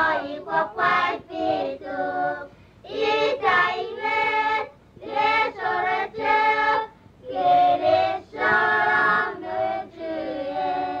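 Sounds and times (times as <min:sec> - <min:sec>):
girls singing unaccompanied: 0:00.0 - 0:11.0
quick breaths: 0:02.5 - 0:02.8.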